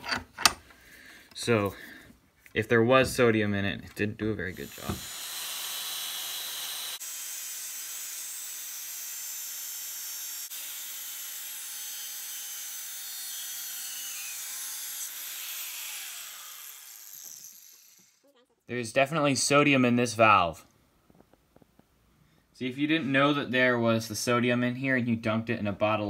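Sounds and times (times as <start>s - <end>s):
angle grinder cutting steel: 4.5s - 18.2s.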